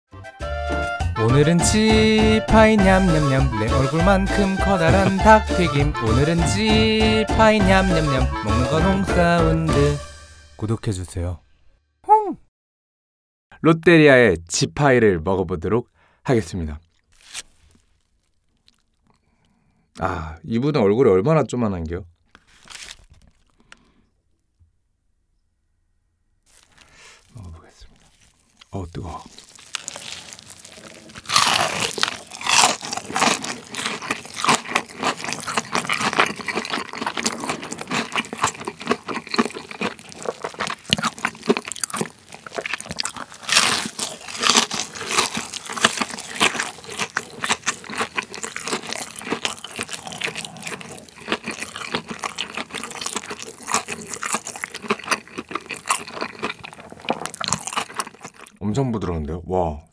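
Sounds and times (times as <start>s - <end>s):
crunchy chewing: 16.7s - 20.0s, 22.2s - 24.4s, 26.5s - 58.6s
crunchy bites into fried chicken: 16.8s - 19.6s, 26.5s - 27.4s, 28.0s - 58.6s.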